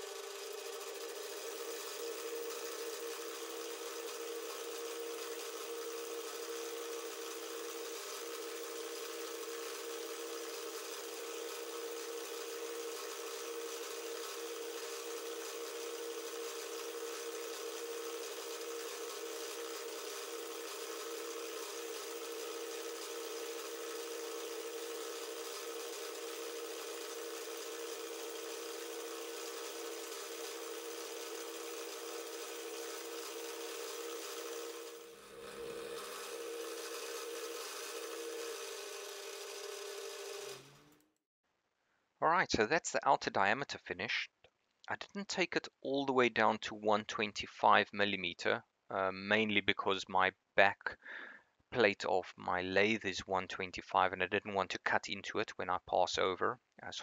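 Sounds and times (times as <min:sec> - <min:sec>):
metal lathe humming: 0:00.0 - 0:41.0.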